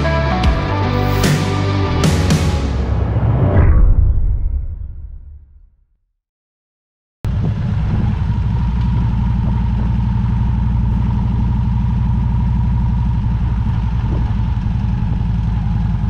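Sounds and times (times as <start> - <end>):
motorcycle engine rumbling: 7.3 - 16.0.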